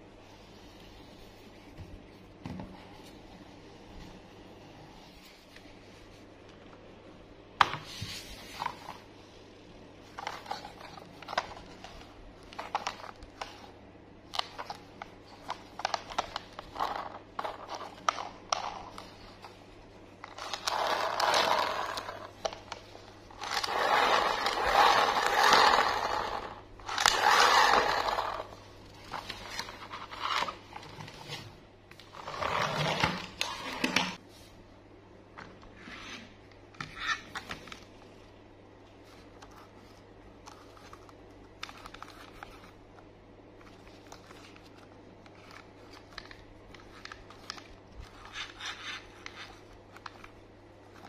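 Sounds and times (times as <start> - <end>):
plastic toy scraping: 20.3 - 22.3, 23.4 - 31.5, 32.1 - 34.2.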